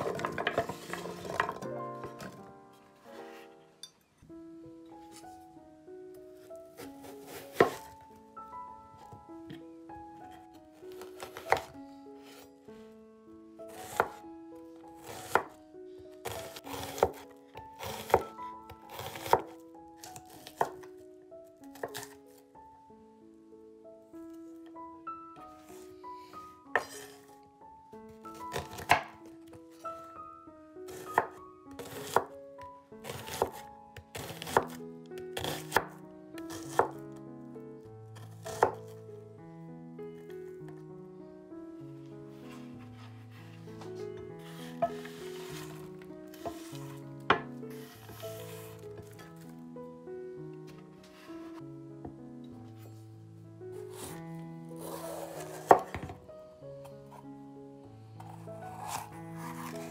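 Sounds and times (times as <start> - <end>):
soft background music: 0.0 - 59.9
knife slicing onion on board: 6.8 - 8.0, 11.0 - 12.4, 13.8 - 14.2, 15.0 - 15.6, 16.3 - 17.2, 17.8 - 18.3, 18.9 - 19.5, 21.8 - 22.2, 26.8 - 27.2, 28.4 - 29.2, 30.9 - 32.3, 33.0 - 33.6, 34.2 - 34.8, 35.4 - 37.0, 38.2 - 38.9, 44.4 - 49.1, 53.9 - 54.2, 54.8 - 56.1, 58.7 - 59.9
knife crunching through onion: 16.3 - 17.2, 58.7 - 59.9.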